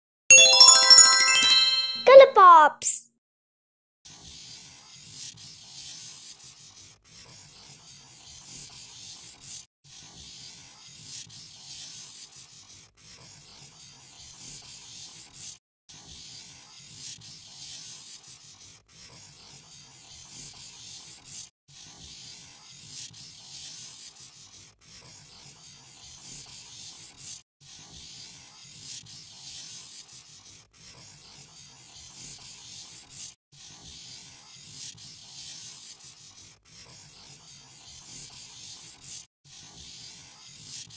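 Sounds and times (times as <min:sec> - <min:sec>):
pen scratching on paper: 0:04.1 - 0:40.9.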